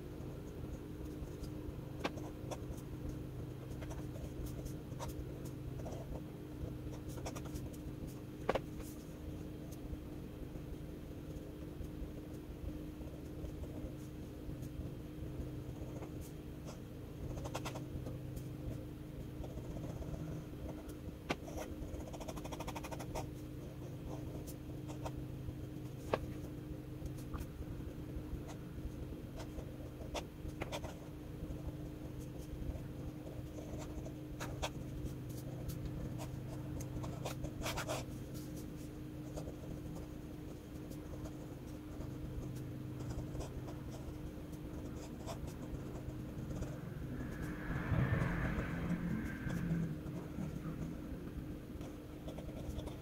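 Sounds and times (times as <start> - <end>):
steady low hum: 0.0 - 53.0
fountain pen scratching paper: 1.0 - 9.8, 15.7 - 18.8, 19.4 - 25.2, 29.4 - 46.8, 51.8 - 53.0.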